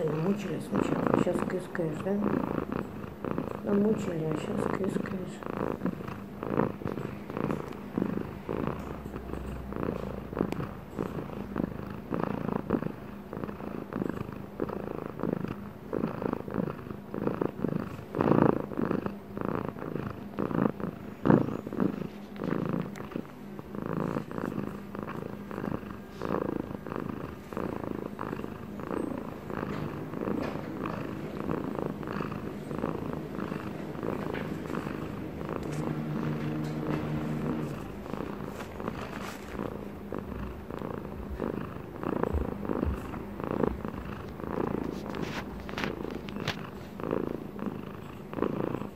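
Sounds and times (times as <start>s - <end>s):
cat purring: 0.0s - 48.9s.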